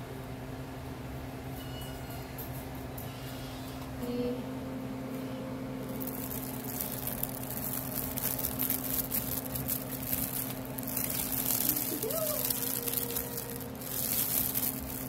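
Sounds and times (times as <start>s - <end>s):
low hum: 3.9s - 15.0s
fabric tunnel rustling and crinkling: 5.8s - 15.0s.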